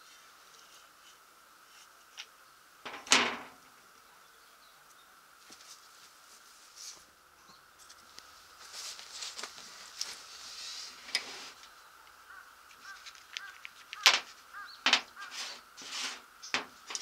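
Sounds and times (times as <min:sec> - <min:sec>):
parts and tools clicking on table: 0:12.8 - 0:14.3.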